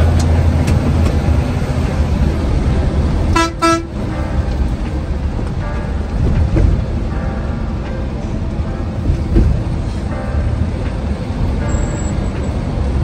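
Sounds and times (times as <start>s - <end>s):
bus engine and road rumble: 0.0s - 13.0s
vehicle horn toots: 3.3s - 4.0s.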